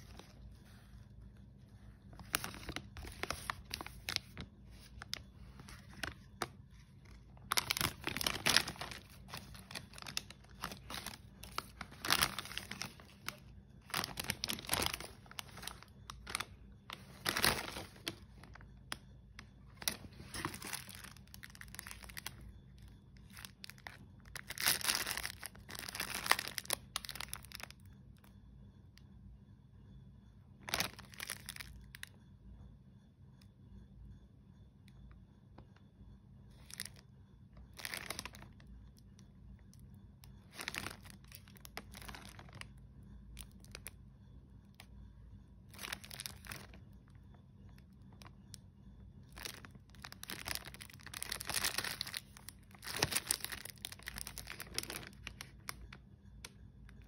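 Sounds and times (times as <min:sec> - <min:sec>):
plastic wrapper crinkling: 0:00.0 - 0:27.9, 0:30.6 - 0:32.1, 0:36.6 - 0:37.0, 0:37.6 - 0:38.7, 0:40.3 - 0:44.0, 0:45.7 - 0:48.5, 0:49.3 - 0:56.0.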